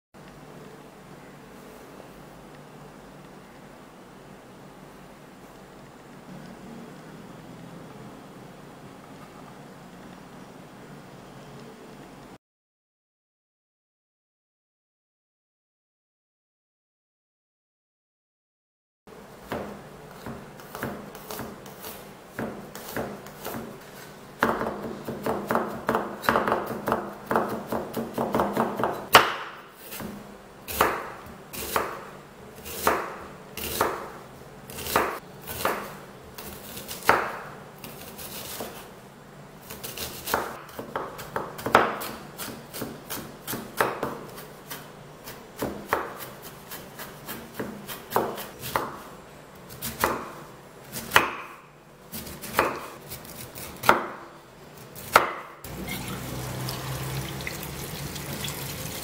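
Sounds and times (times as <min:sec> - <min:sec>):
knife chopping on wooden board: 0:19.5 - 0:23.7, 0:24.4 - 0:32.0, 0:32.7 - 0:34.1, 0:34.7 - 0:36.0, 0:36.8 - 0:38.8, 0:39.8 - 0:49.0, 0:49.8 - 0:54.2, 0:55.0 - 0:55.8.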